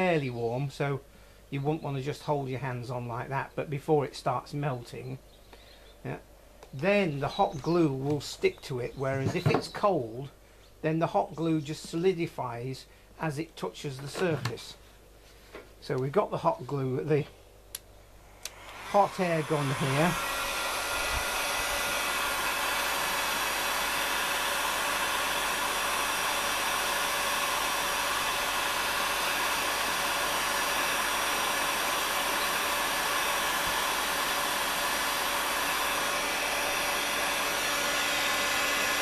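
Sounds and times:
hot air gun blowing with whine: 18.2s - 39.0s.

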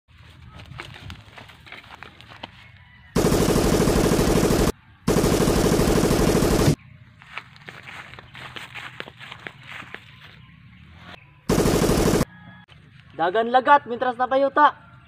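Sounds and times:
machine-gun automatic fire: 3.2s - 6.8s, 11.5s - 12.2s.

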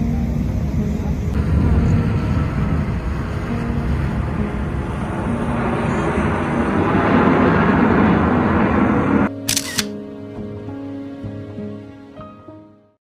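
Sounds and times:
boat engine drone: 0.0s - 9.3s.

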